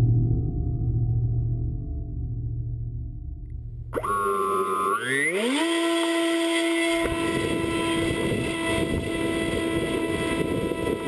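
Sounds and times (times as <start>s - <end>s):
electric motor and propeller whine: 3.9s - 11.0s
wind rushing over microphone: 7.0s - 11.0s.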